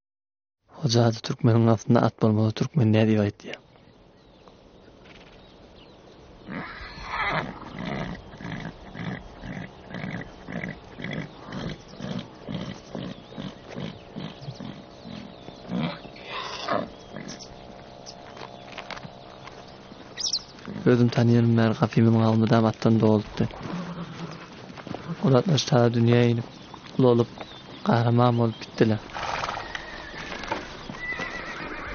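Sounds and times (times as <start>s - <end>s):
horse whinnying: 6.4s - 17.5s, 23.6s - 25.3s, 29.1s - 31.9s.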